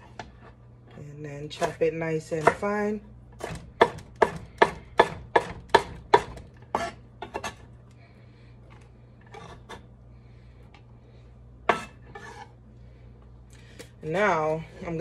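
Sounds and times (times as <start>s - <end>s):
knife chopping on wooden board: 2.4s - 2.8s, 3.4s - 7.6s
knife scraping on board: 6.7s - 7.6s, 9.3s - 9.8s, 11.7s - 12.6s.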